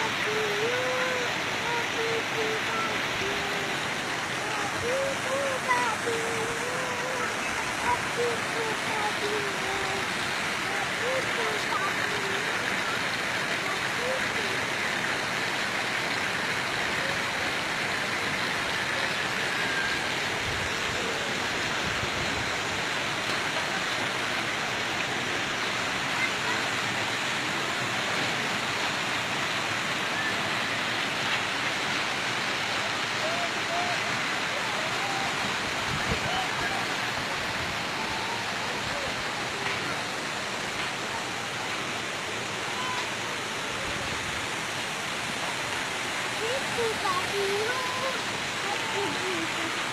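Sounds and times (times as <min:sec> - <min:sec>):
water rushing through channels: 0:00.0 - 0:49.9.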